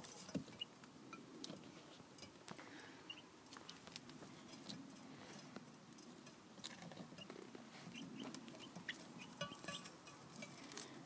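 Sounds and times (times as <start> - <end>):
chicks peeping: 3.0 - 3.3, 6.6 - 10.8.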